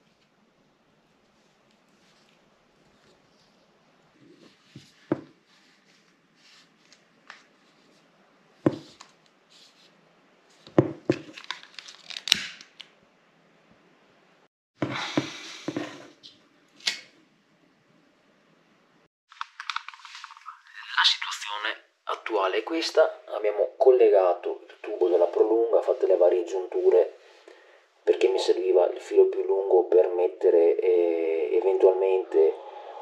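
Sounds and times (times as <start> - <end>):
hands rustling electrical cable: 8.7 - 12.9.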